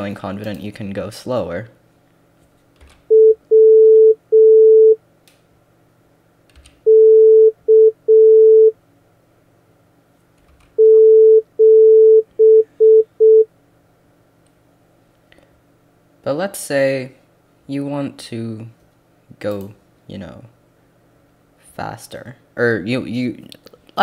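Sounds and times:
morse code beeping: 3.1 - 5.0, 6.9 - 8.7, 10.8 - 13.5.

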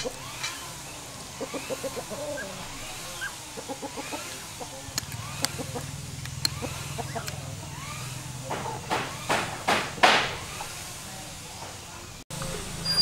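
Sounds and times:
chickens clucking: 0.0 - 7.5
sharp clicks: 4.9 - 7.4.

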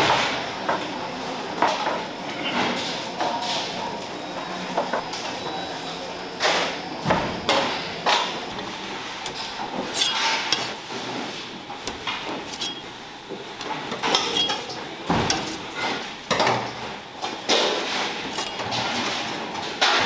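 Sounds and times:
steel kitchenware clattering: 9.2 - 10.9, 11.9 - 13.0, 13.8 - 16.7, 17.5 - 20.0.

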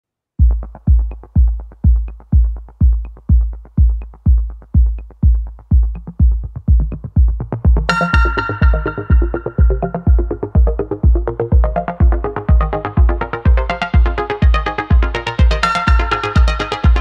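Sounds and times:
electronic dance music: 0.4 - 17.0
steady kick drum: 0.4 - 17.0
bright synth chord: 7.9 - 10.8.

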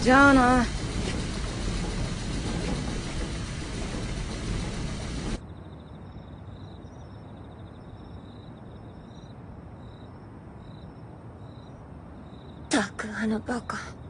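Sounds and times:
crickets trilling: 5.4 - 13.8.

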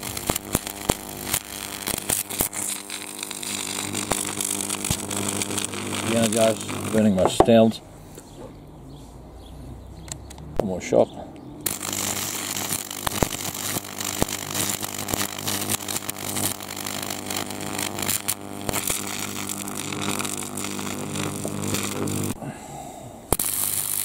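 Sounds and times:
electric zapper buzzing and crackling: 0.0 - 7.4, 11.6 - 22.4, 23.3 - 24.0.

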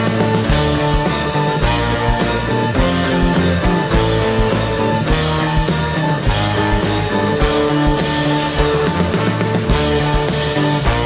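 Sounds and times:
electric guitar: 0.0 - 11.0
keyboards: 0.0 - 11.0
steady drum beat: 0.0 - 11.0.

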